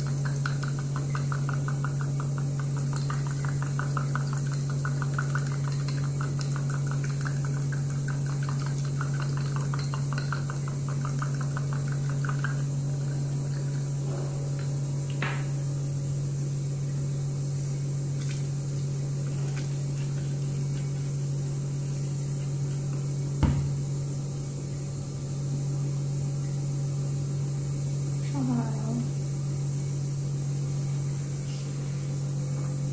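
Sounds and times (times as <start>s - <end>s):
steady low hum: 0.0s - 32.9s
sharp knock: 23.4s - 23.8s.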